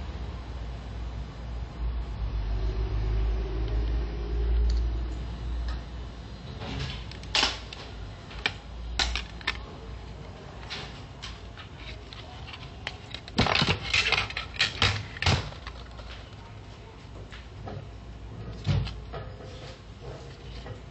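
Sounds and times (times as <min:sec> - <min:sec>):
plastic clicks and snaps: 0:07.1 - 0:09.6.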